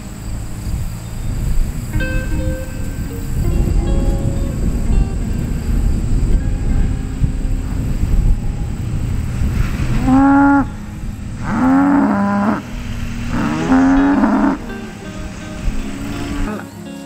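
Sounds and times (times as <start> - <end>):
cow mooing: 9.9 - 14.9.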